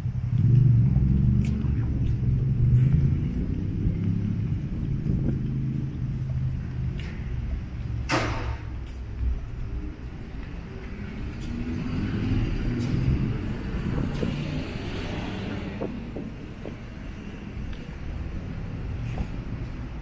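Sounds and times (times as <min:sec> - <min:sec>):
car passing with tyre noise: 0:00.0 - 0:20.0
vehicle engines rumbling: 0:00.0 - 0:20.0.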